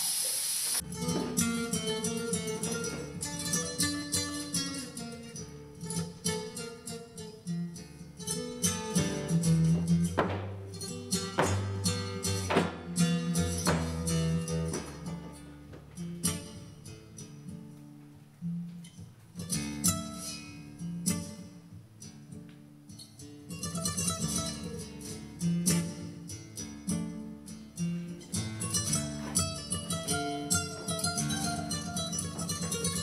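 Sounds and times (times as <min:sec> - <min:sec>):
flamenco guitar music: 0:00.8 - 0:33.0.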